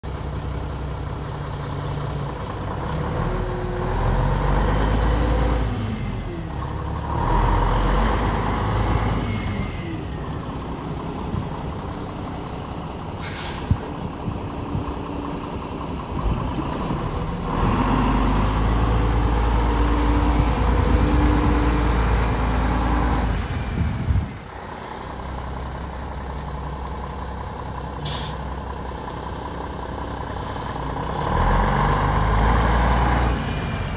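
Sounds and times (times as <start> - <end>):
diesel truck engine revving: 0.1 - 33.9
air brake hisses: 13.2 - 13.8, 28.0 - 28.5.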